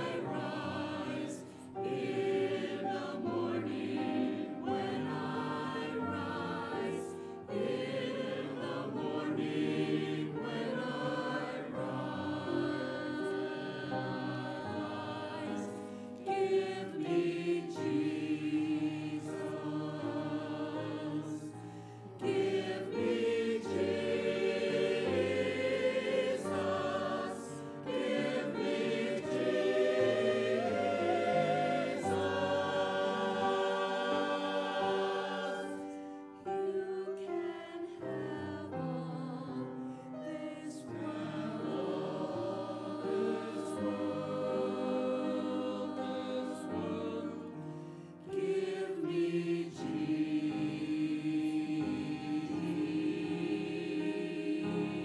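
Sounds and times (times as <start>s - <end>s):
church choir singing: 0.0s - 55.0s.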